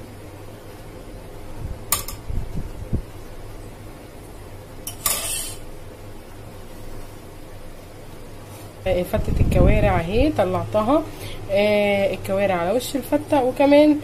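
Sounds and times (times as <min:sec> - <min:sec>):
metal utensil clinking on ceramic: 0:04.9 - 0:05.6.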